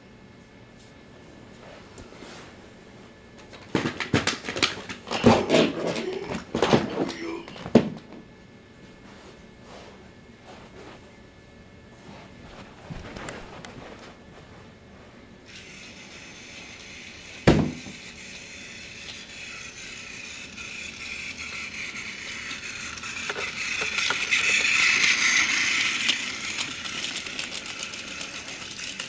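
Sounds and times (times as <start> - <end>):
toy train motor whine: 15.5 - 29.0
wheels rattling on plastic track: 19.0 - 29.0.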